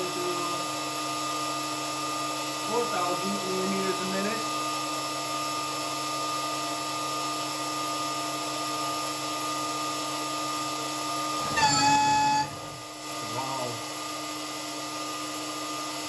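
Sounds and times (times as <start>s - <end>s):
spindle machining whine: 0.0s - 5.4s, 8.0s - 16.0s
louder lower tone: 11.4s - 13.0s.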